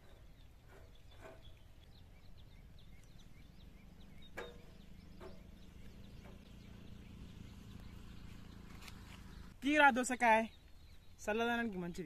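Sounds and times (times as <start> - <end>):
small birds chirping: 0.0 - 12.0.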